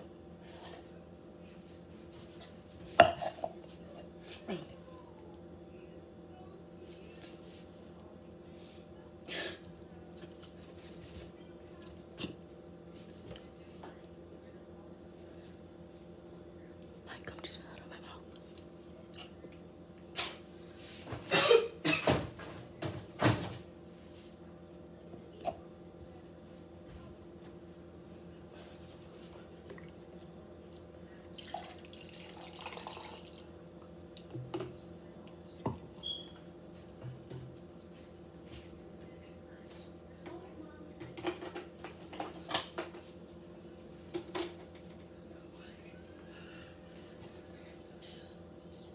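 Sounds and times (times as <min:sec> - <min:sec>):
faint steady hum: 0:00.0 - 0:22.0, 0:22.8 - 0:48.9
water pouring into plastic cup: 0:31.4 - 0:33.5.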